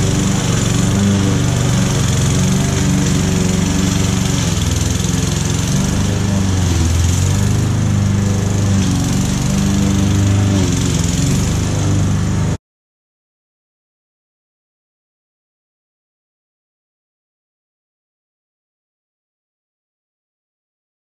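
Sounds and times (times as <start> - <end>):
lawn mower engine cutting grass: 0.0 - 12.6.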